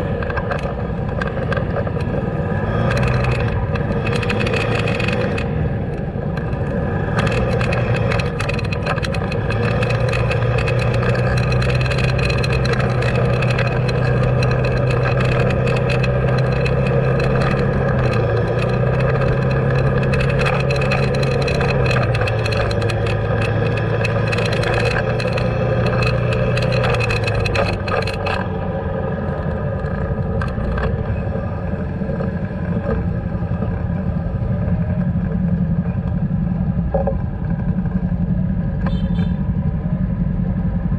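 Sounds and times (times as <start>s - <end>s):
road noise: 0.0s - 40.9s
vehicle engine driving: 0.0s - 40.9s
short rattling clicks: 6.4s - 28.6s.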